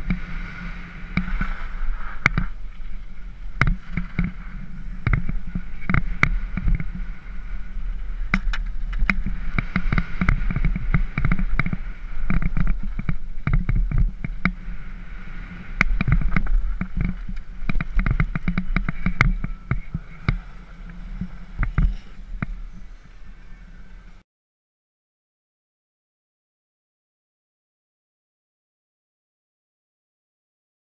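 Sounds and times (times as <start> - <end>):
mountain bike rattling on dirt trail: 0.0 - 23.7
wind buffeting microphone: 0.0 - 24.2
bike clacking over bumps: 1.0 - 14.8, 15.8 - 23.9.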